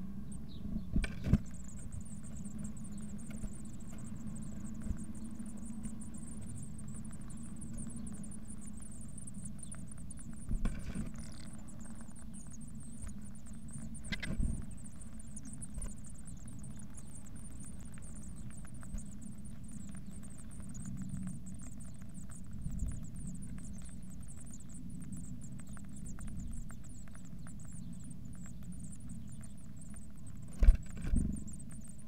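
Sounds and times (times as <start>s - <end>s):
steady low rumble: 0.0s - 32.0s
small clicks: 9.4s - 32.0s.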